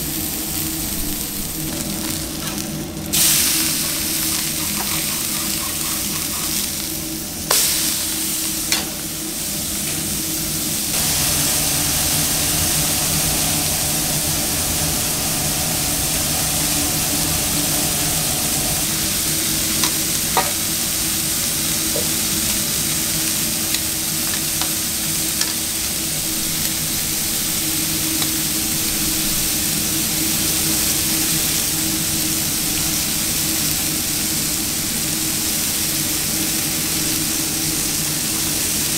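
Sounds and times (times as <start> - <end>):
burger patties sizzling: 0.0 - 38.9
low hum: 3.0 - 8.6, 9.2 - 20.4.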